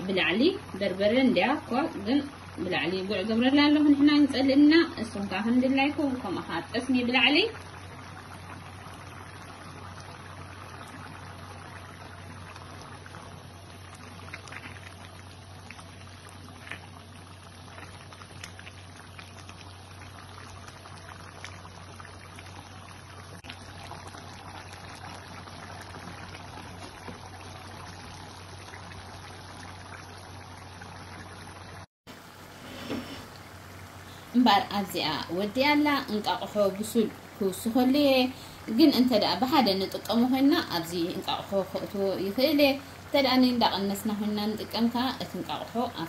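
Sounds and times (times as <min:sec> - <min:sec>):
low steady hum: 0:00.0 - 0:46.0
stew bubbling in a pan: 0:00.0 - 0:46.0.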